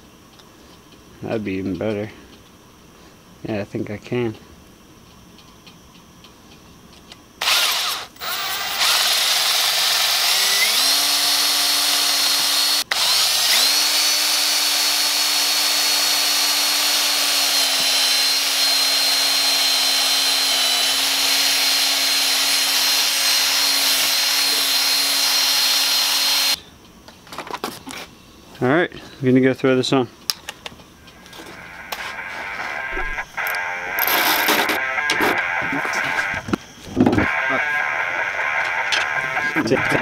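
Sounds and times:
cordless drill boring into rubber: 0:07.4 - 0:26.6, 0:33.4 - 0:34.8.

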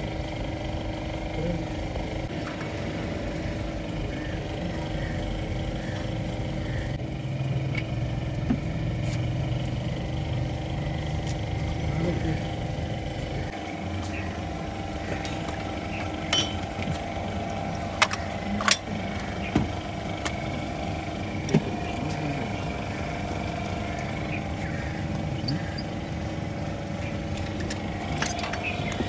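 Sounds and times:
steady mechanical hum: 0:00.0 - 0:29.0
metal tools clinking: 0:16.3 - 0:16.6, 0:18.0 - 0:18.9, 0:27.4 - 0:29.0.

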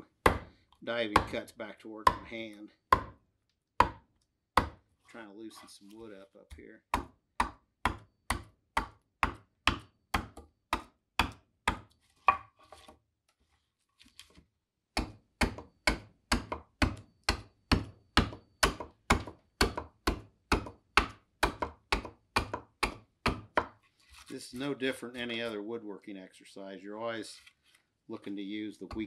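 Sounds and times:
adze chopping wood: 0:00.2 - 0:00.6, 0:02.9 - 0:03.2, 0:03.8 - 0:04.0, 0:04.6 - 0:04.8, 0:06.9 - 0:12.5, 0:15.0 - 0:23.8.

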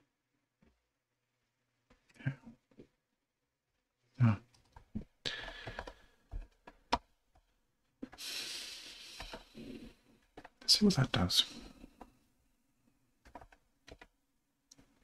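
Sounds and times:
computer keyboard keystrokes: 0:04.6 - 0:07.1, 0:13.2 - 0:14.1
breathing close to microphone: 0:05.2 - 0:06.2.

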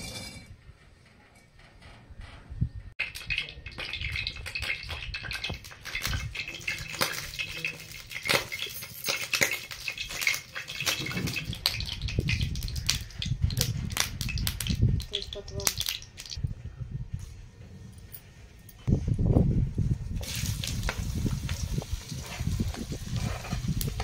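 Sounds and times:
oil sizzling and popping: 0:03.0 - 0:16.4, 0:20.2 - 0:24.0.

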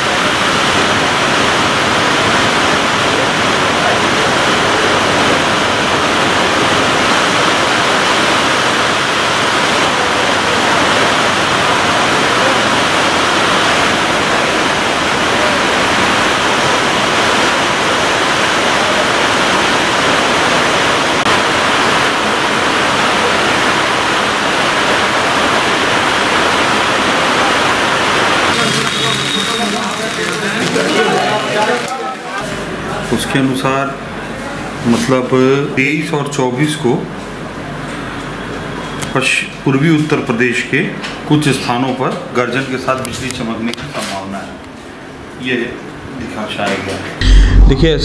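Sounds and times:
heavy rain pouring: 0:00.0 - 0:33.0.

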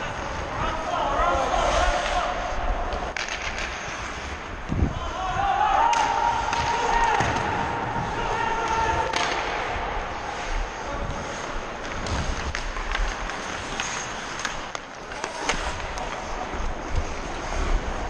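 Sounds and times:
skates scraping on ice: 0:00.0 - 0:18.0
sticks and puck clacking: 0:00.0 - 0:18.0
wind rumble on microphone: 0:04.6 - 0:05.5.

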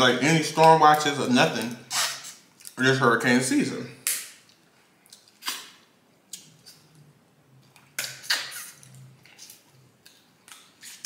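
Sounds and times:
wet mouth smacks and sucking: 0:01.9 - 0:02.8, 0:04.1 - 0:06.9, 0:07.8 - 0:09.7.

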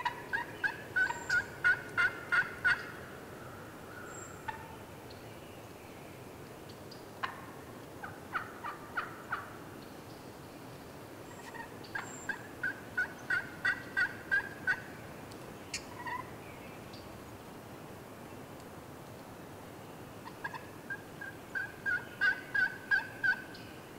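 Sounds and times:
wild turkey yelping: 0:00.0 - 0:03.0, 0:03.9 - 0:04.8, 0:08.0 - 0:09.6, 0:11.4 - 0:14.9, 0:15.7 - 0:16.3, 0:20.2 - 0:23.6.

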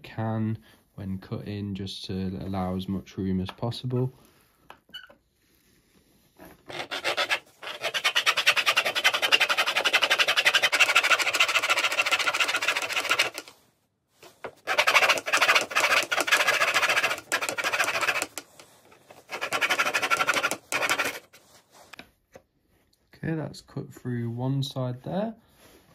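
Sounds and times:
hand saw cutting: 0:06.7 - 0:13.5, 0:14.5 - 0:21.4.

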